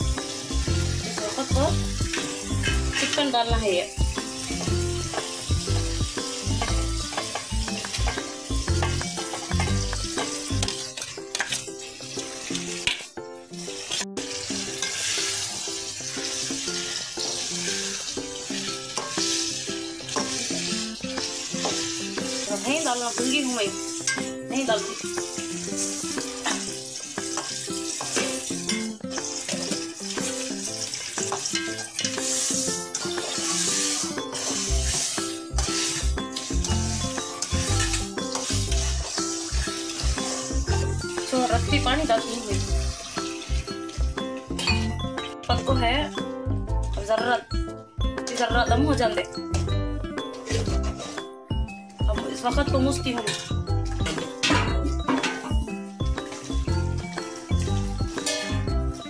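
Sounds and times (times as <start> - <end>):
chicken sizzling in a pot: 0.0 - 47.4, 48.0 - 59.0
background music: 0.0 - 59.0
metal ladle stirring: 2.0 - 3.4, 4.3 - 45.4, 53.2 - 55.6, 57.3 - 59.0.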